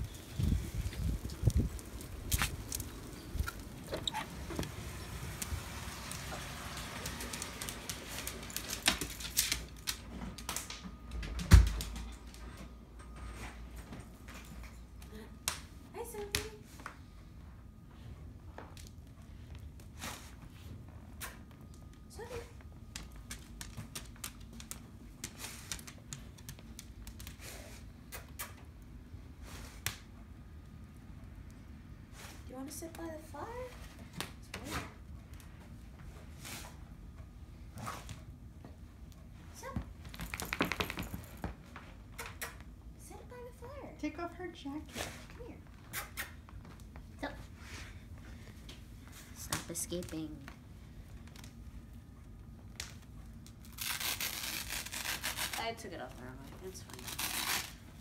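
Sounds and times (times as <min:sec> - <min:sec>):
dog claws clicking on floor: 0:05.4 - 0:12.4, 0:22.9 - 0:27.5, 0:40.0 - 0:42.7.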